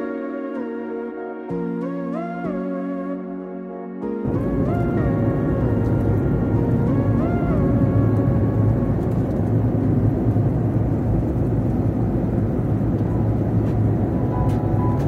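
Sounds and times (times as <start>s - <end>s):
background music: 0.0s - 15.0s
vehicle rumble from inside: 4.3s - 15.0s.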